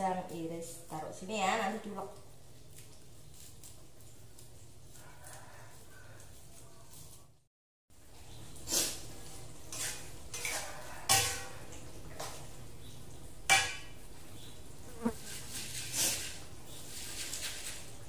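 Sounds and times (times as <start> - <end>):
spatula scraping a wok: 8.6 - 12.4, 15.0 - 18.0.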